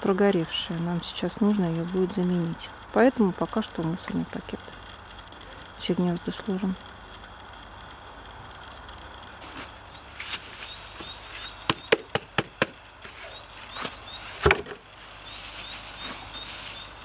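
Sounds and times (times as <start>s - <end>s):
rustling of plastic bag: 9.3s - 11.7s, 12.8s - 17.0s
knocks on wooden birdhouse: 11.7s - 12.8s, 14.4s - 14.8s.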